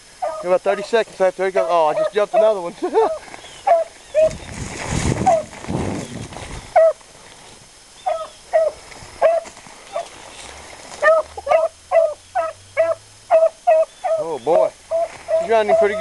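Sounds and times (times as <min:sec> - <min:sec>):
dog yelping barks: 0:00.2 - 0:00.9, 0:01.6 - 0:04.3, 0:05.2 - 0:05.5, 0:06.8 - 0:07.0, 0:08.0 - 0:10.1, 0:11.0 - 0:14.3, 0:14.9 - 0:16.0.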